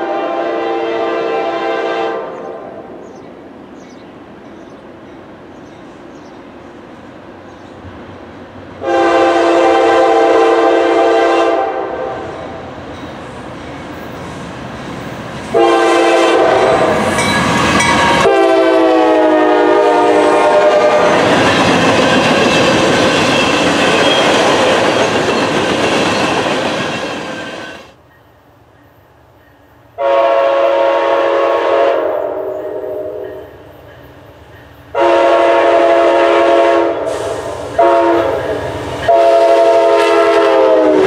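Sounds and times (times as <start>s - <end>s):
locomotive horn blasts: 0.0s - 2.6s, 8.8s - 12.2s, 15.5s - 17.1s, 17.9s - 21.2s, 30.0s - 33.4s, 34.9s - 41.0s.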